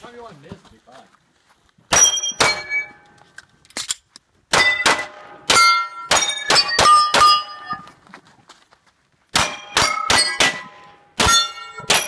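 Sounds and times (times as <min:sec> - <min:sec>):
steel plate target clanging: 0:01.9 - 0:03.0, 0:04.5 - 0:07.9, 0:09.4 - 0:12.0
handgun shots: 0:09.4 - 0:12.0.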